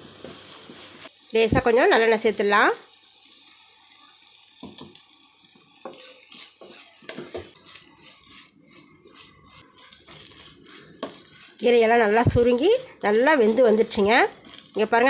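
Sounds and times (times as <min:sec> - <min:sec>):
wooden spatula scraping a pan: 0:00.0 - 0:01.1, 0:05.8 - 0:15.0.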